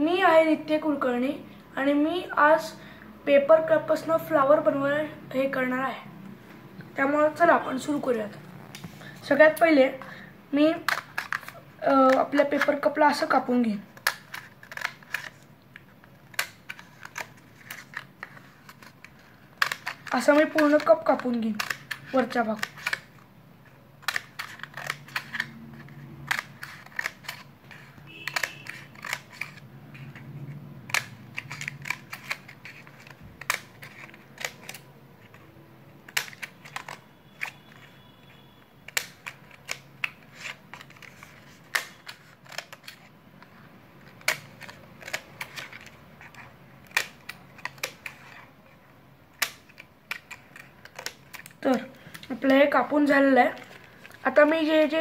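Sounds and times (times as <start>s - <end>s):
scissors snipping paper cup: 24.0s - 29.6s.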